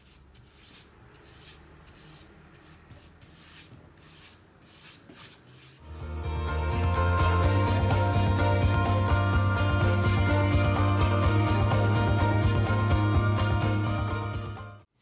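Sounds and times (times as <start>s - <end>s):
paintbrush swishing: 0.0s - 6.1s
loud music: 5.9s - 14.6s.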